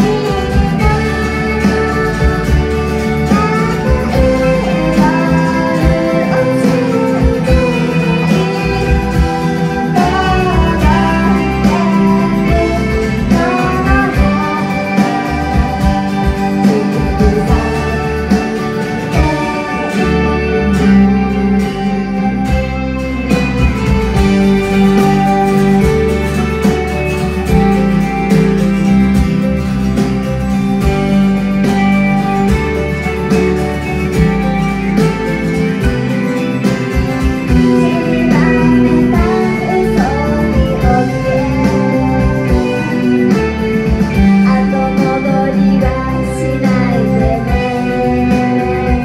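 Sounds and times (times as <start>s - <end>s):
woman singing: 0.0s - 22.6s, 37.5s - 49.0s
acoustic guitar strumming: 0.0s - 49.0s.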